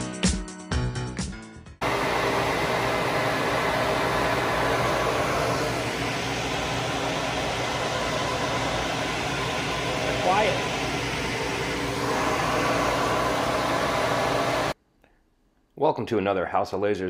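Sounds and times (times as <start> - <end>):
exhaust fan air rush: 1.8 - 14.8.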